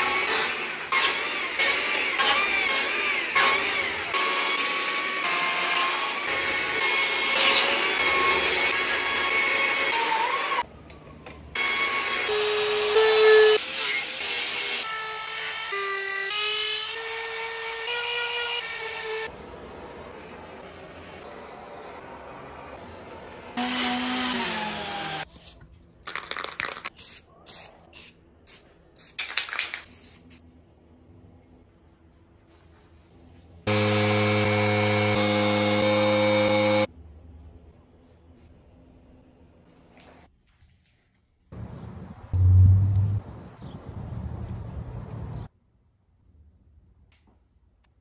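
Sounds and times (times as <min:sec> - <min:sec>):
chainsaw cutting wood: 0:00.0 - 0:05.7, 0:23.6 - 0:25.2, 0:33.7 - 0:36.9
power carving tool whining: 0:23.6 - 0:25.2, 0:33.7 - 0:36.9.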